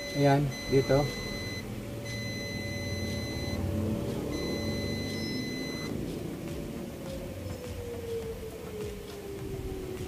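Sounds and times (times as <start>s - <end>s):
multimeter continuity beeps: 0.0s - 5.9s
low background rumble: 0.0s - 10.0s.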